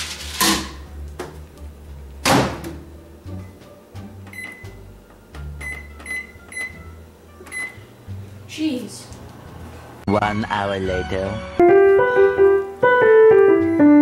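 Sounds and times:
microwave door thump: 0:02.2 - 0:02.8
short high keypad beeps: 0:05.6 - 0:06.8, 0:07.5 - 0:07.8.

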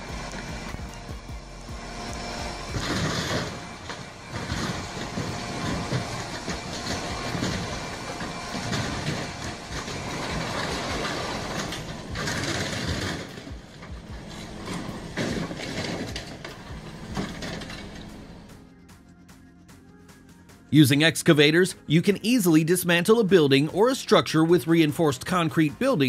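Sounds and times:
metal crunching and scraping: 0:00.0 - 0:18.8
diesel excavator engine running: 0:00.0 - 0:26.0.

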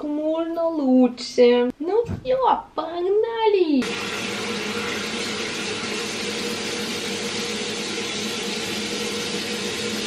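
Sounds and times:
tap water running: 0:03.8 - 0:10.0.

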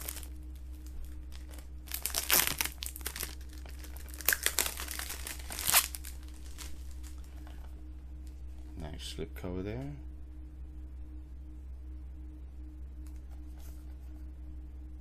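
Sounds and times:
plastic wrap crinkling and tearing: 0:00.0 - 0:00.3, 0:01.0 - 0:07.3.

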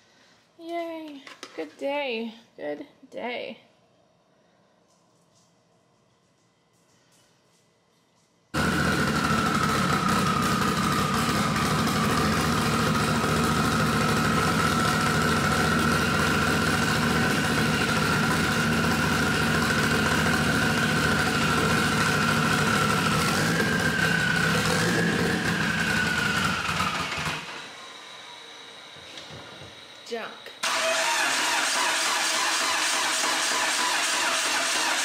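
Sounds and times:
car engine idling: 0:08.6 - 0:27.5
turbo whine: 0:08.6 - 0:35.0.

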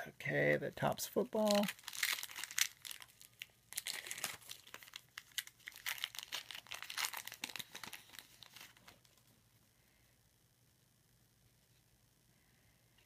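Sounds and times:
foil wrapper tearing and crinkling: 0:01.4 - 0:09.2.

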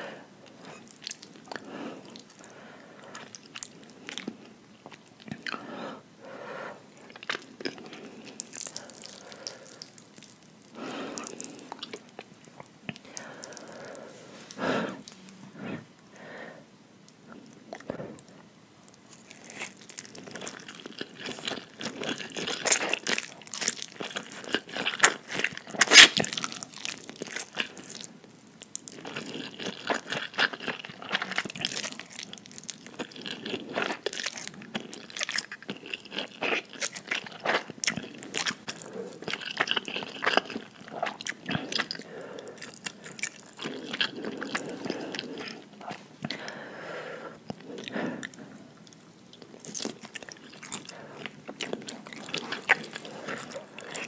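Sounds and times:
slurping and chewing noodles: 0:19.1 - 0:28.1, 0:28.8 - 0:54.0.

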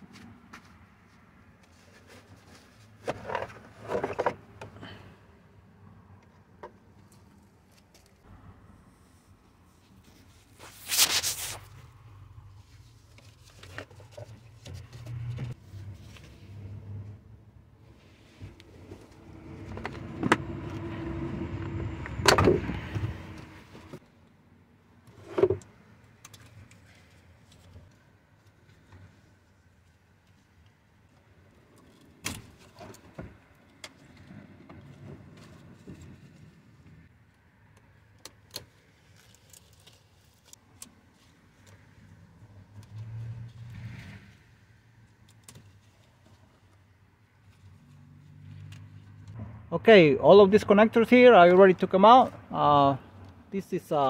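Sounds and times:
plastic scraping and clattering: 0:01.9 - 0:04.7.

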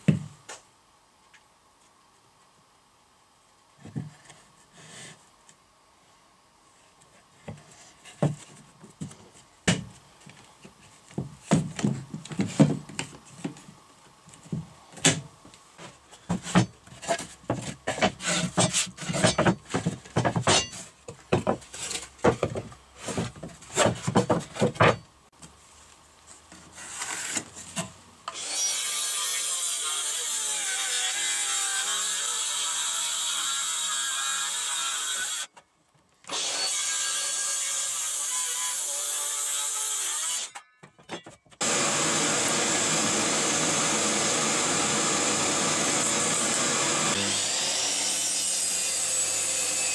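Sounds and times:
wooden boards sliding and rubbing: 0:15.8 - 0:25.0.

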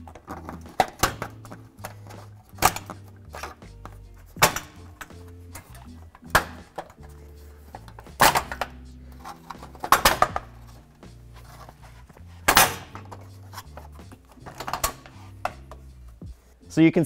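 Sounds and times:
background music with bass line: 0:00.0 - 0:17.0.

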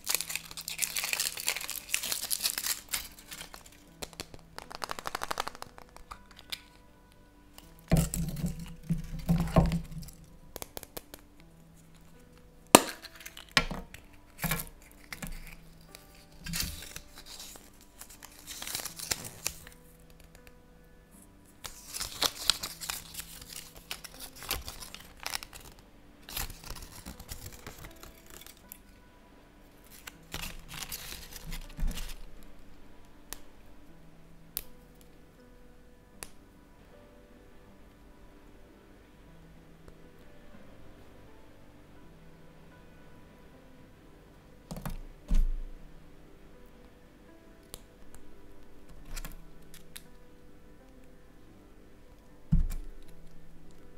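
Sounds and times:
paper rustling: 0:00.0 - 0:06.8, 0:13.0 - 0:20.5, 0:21.6 - 0:28.9, 0:29.8 - 0:32.3
chocolate egg cracking: 0:00.0 - 0:20.6, 0:21.6 - 0:28.9, 0:29.8 - 0:32.5, 0:52.5 - 0:53.8
faint background music: 0:00.0 - 0:53.9.

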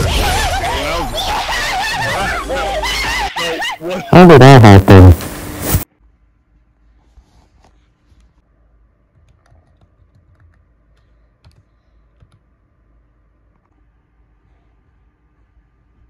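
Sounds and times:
laptop keyboard typing: 0:09.1 - 0:12.5.

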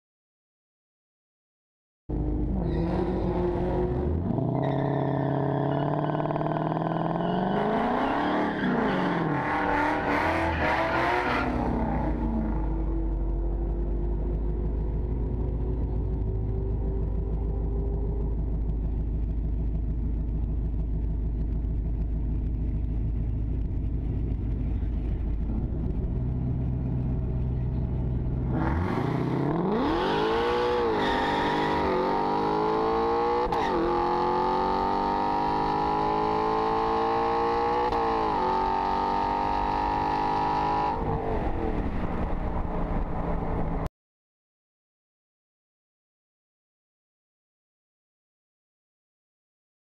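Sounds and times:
car engine accelerating: 0:02.1 - 0:43.9
car engine idling: 0:12.6 - 0:28.6.

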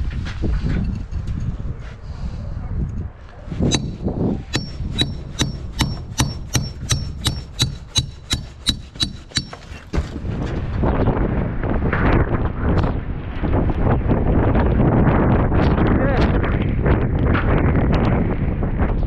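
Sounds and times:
metal hammer striking: 0:03.7 - 0:10.1.

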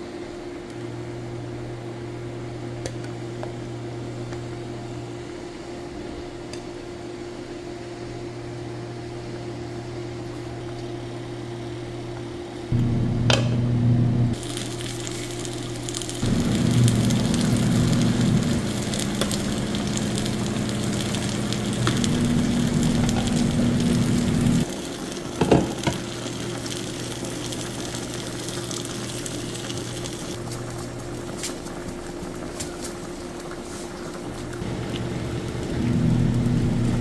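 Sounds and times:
low cooktop hum: 0:00.0 - 0:37.0
broth simmering and bubbling: 0:14.3 - 0:37.0.

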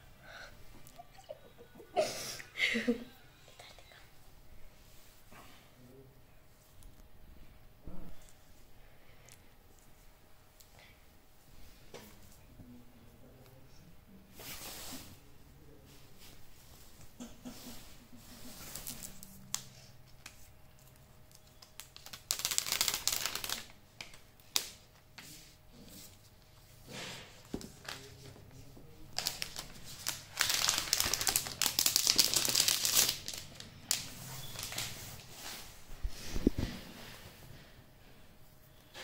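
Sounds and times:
plastic wrap crinkling: 0:20.2 - 0:24.8, 0:29.1 - 0:35.6.

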